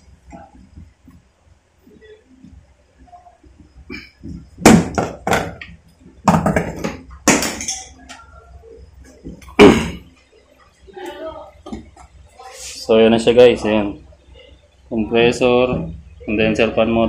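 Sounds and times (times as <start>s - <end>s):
sharp knocks and clatters on metal: 4.6s - 8.0s.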